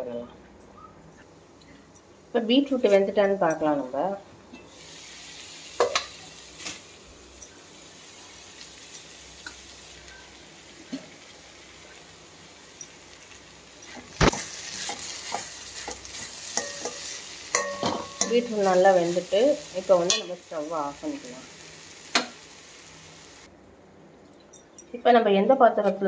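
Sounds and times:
beetroot sizzling in a pan: 4.7s - 23.5s
spoon scraping a pan: 13.8s - 19.2s.

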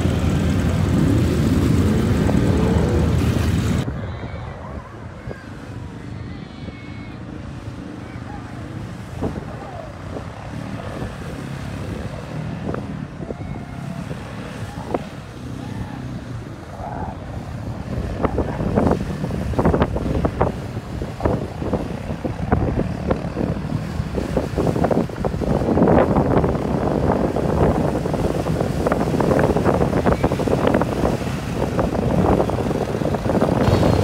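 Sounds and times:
quad bike engine running: 0.0s - 3.8s, 17.3s - 34.0s.

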